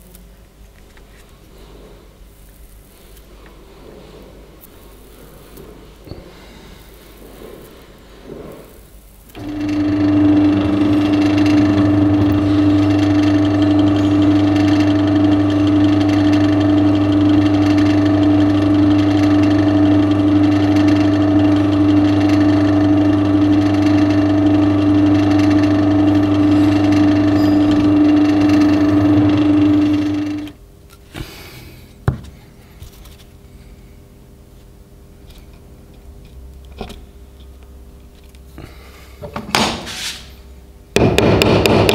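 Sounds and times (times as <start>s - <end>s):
drill press motor running: 9.3s - 30.6s, 40.9s - 41.9s.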